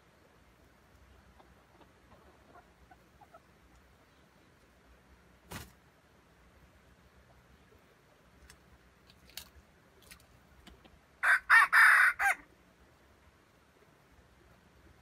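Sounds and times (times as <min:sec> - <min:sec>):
rooster crowing: 0:11.2 - 0:12.5.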